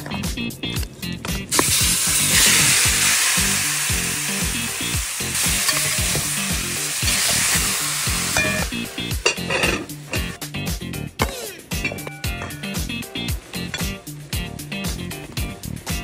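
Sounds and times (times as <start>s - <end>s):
music with steady beat: 0.0s - 16.0s
chicken sizzling in hot oil: 1.5s - 10.0s.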